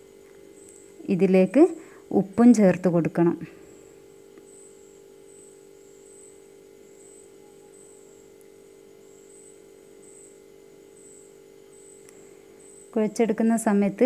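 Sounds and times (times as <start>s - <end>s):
steady low hum: 0.0s - 14.0s
high-pitched pulsing chirp: 4.4s - 14.0s.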